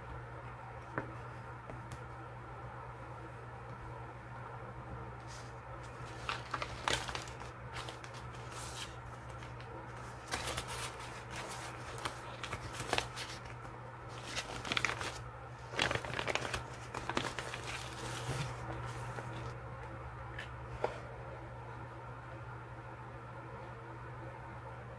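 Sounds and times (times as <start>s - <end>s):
steady low hum: 0.0s - 24.9s
paper rustling and crinkling: 5.2s - 19.6s.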